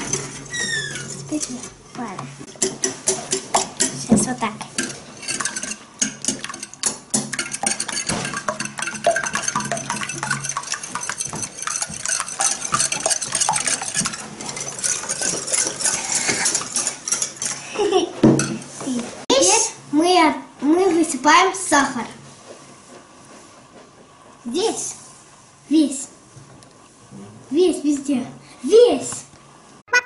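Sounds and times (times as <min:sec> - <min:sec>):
whisk clinking against glass bowl: 0:04.7 - 0:17.6.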